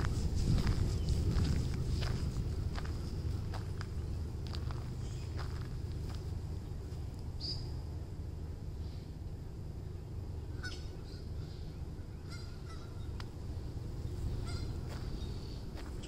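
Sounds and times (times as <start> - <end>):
steady low rumble: 0.0 - 16.0
geese honking: 10.4 - 15.6.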